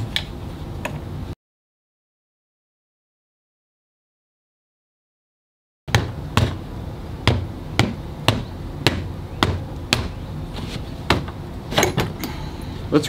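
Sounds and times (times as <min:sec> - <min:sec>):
sharp knocks: 0:05.9 - 0:06.6, 0:07.2 - 0:10.2, 0:11.1 - 0:12.2.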